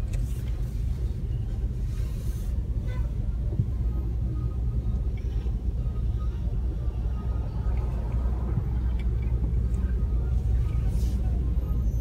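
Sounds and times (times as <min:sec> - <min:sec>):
car driving rumble: 0:00.0 - 0:12.0.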